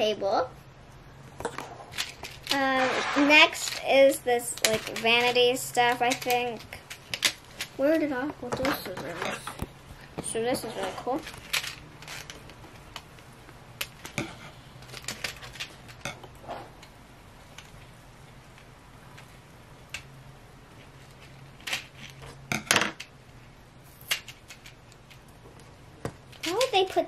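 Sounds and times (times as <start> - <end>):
plastic clicking and crackling: 3.6 - 16.2, 24.1 - 27.0
scissors snipping plastic: 4.6 - 7.4.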